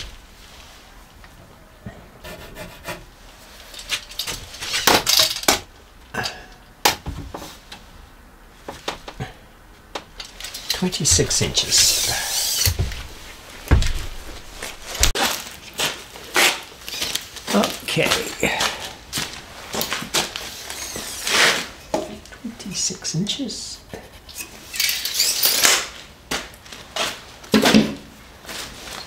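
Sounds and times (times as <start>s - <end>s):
tape measure clicking and rattling: 3.8s - 5.6s
rustling: 10.1s - 21.8s
heavy thump: 11.0s - 11.9s, 12.6s - 15.1s.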